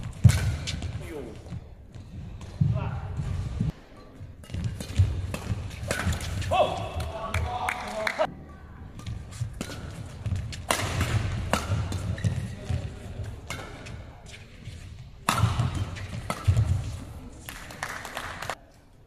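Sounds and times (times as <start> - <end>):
rackets striking shuttlecock: 0.0 - 1.0, 4.4 - 7.5, 9.0 - 14.0, 15.2 - 17.7.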